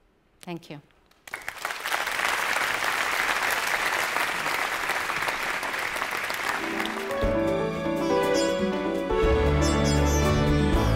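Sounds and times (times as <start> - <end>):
audience applauding: 1.2 - 7.4.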